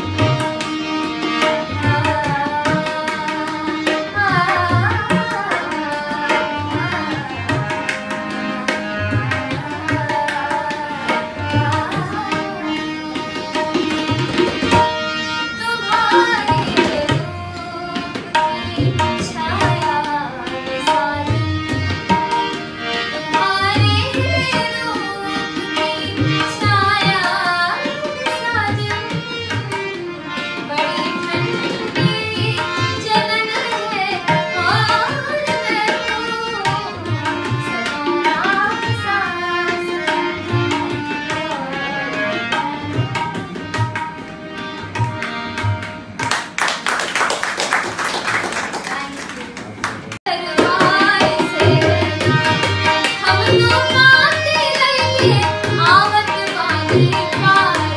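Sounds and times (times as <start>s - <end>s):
harmonium: 0.0s - 47.3s, 48.1s - 57.9s
woman singing: 1.4s - 7.9s, 8.5s - 14.2s, 15.6s - 22.3s, 23.1s - 29.9s, 30.6s - 43.3s, 50.3s - 57.9s
hand clapping: 45.0s - 50.2s.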